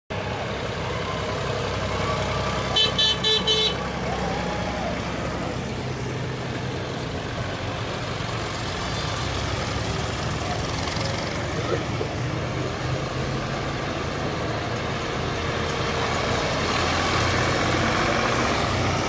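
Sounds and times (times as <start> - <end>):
tractor engine running: 0.1 - 19.0
horn tooting: 2.4 - 4.2.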